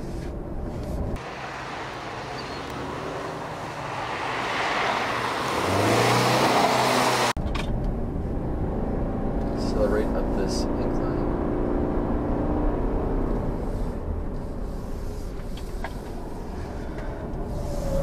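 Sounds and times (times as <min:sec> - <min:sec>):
car engine and tyres passing: 0:01.2 - 0:07.4, 0:08.2 - 0:18.0.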